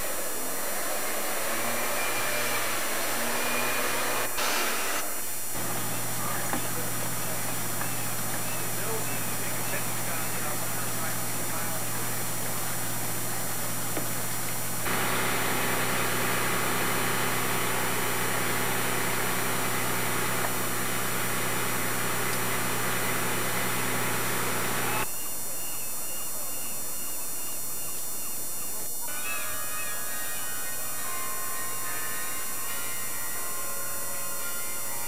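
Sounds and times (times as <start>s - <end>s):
faint steady tones: 5.0s - 35.0s
low hum: 10.7s - 25.0s.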